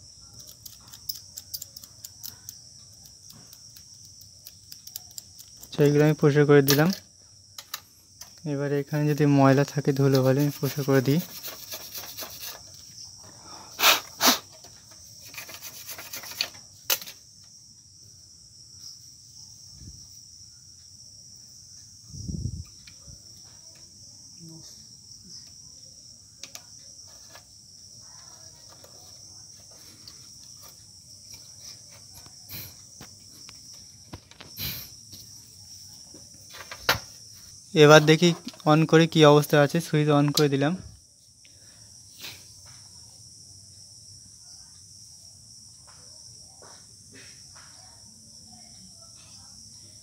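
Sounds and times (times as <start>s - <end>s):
high-pitched hiss: 4.1s - 43.8s.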